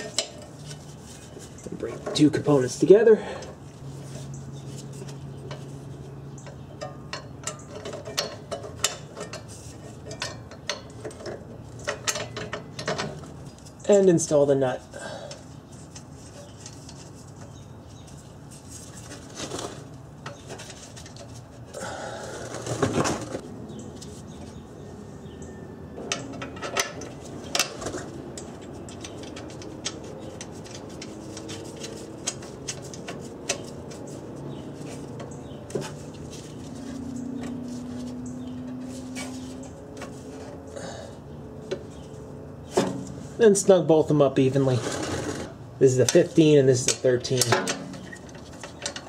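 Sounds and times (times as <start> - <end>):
tools clattering: 6.4 - 13.8.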